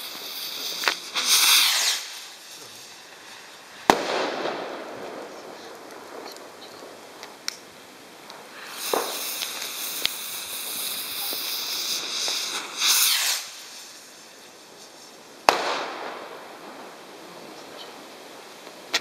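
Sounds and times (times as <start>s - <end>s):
firework rocket hissing: 0.0s - 19.0s
firework bang with echo: 3.8s - 6.3s, 15.4s - 16.4s.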